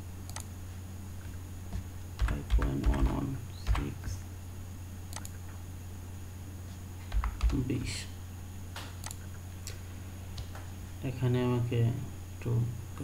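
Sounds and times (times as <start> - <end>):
steady low hum: 0.0 - 13.0
keyboard typing: 1.7 - 3.9, 7.1 - 7.6.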